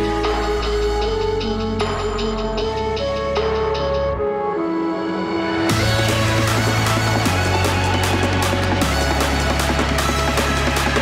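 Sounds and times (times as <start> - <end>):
electronic trap music: 0.0 - 11.0.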